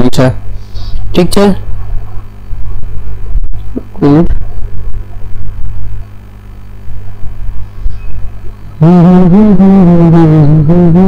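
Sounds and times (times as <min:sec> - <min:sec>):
low electrical hum: 0:00.0 - 0:11.0
man humming: 0:03.6 - 0:04.4, 0:08.8 - 0:11.0.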